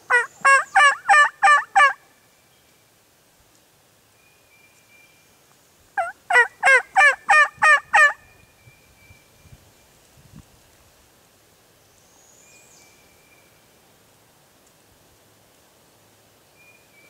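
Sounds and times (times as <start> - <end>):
turkey yelps: 0.1 - 2.0, 6.0 - 8.2.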